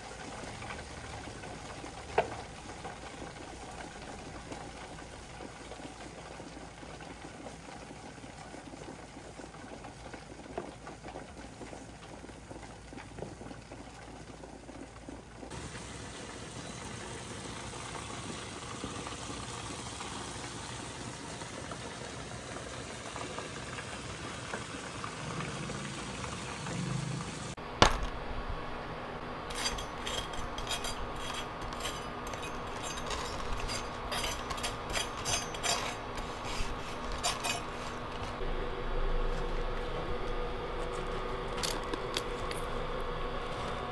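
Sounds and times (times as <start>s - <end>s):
fried chicken sizzling: 0.0s - 27.7s, 31.0s - 43.9s
knife cutting crisp crust: 29.5s - 38.4s.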